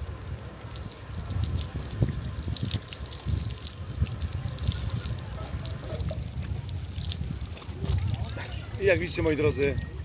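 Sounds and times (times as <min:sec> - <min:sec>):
water splashing and trickling: 0:00.0 - 0:10.0
wind rumble on microphone: 0:00.0 - 0:10.0.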